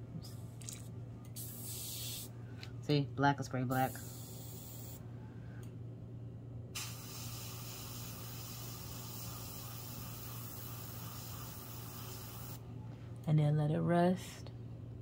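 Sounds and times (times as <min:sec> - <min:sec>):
low steady hum: 0:00.0 - 0:15.0
airbrush air hissing: 0:01.4 - 0:02.3, 0:03.7 - 0:05.0, 0:06.8 - 0:12.6.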